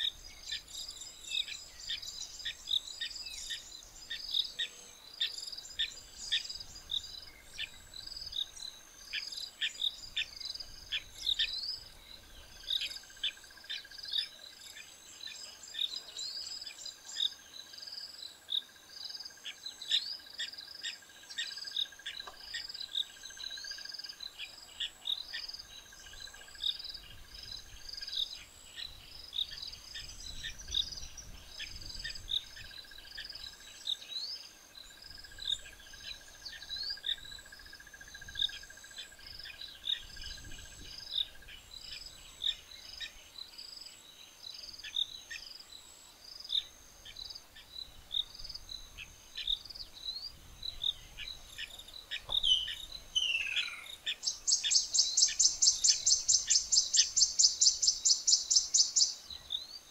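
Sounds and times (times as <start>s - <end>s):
insects chirping: 0.0s - 59.9s
birds short sharp calls: 51.6s - 59.2s.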